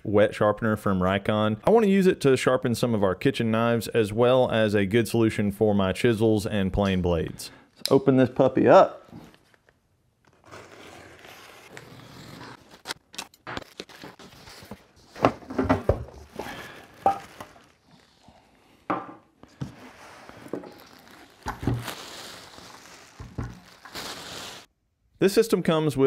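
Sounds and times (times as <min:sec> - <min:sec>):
plastic packaging crinkling: 0:12.5 - 0:18.5, 0:19.5 - 0:24.7.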